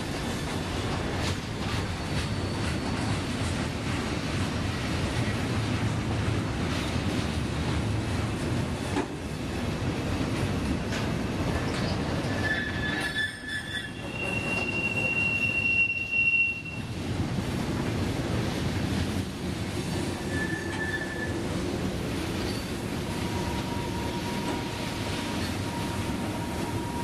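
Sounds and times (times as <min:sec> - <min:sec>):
steel wheels squealing on rail: 0:00.0 - 0:03.9, 0:10.9 - 0:17.1, 0:19.8 - 0:27.0.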